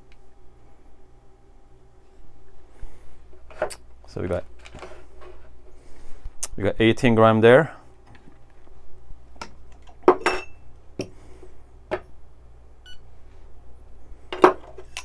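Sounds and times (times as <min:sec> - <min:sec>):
cups clinking and knocking: 0:10.0 - 0:11.1.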